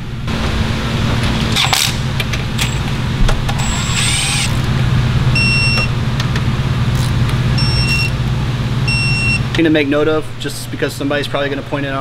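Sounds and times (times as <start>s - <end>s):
steady low hum: 0.0s - 12.0s
cordless ratchet whirring: 3.5s - 4.7s
torque wrench beeping: 3.6s - 4.6s, 5.4s - 5.9s, 7.6s - 8.2s.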